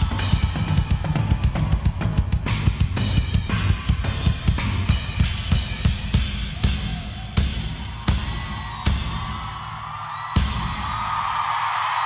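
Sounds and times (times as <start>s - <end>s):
crowd cheering: 0.0s - 4.2s, 6.2s - 12.0s
bass drum and cymbal hits: 0.0s - 9.3s.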